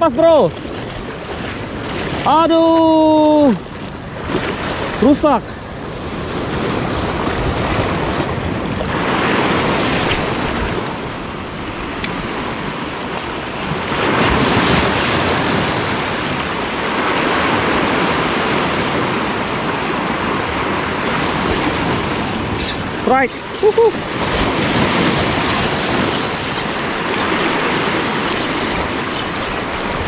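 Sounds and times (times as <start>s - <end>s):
sea waves breaking on rocks: 0.1s - 30.0s.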